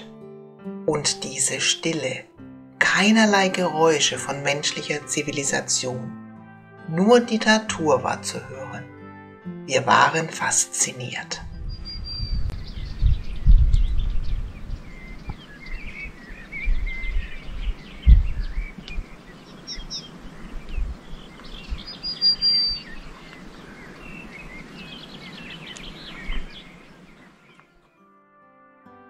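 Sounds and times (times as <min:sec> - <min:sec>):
wind buffeting microphone: 0:11.4 - 0:27.4
birds chirping and whistling: 0:11.4 - 0:27.8.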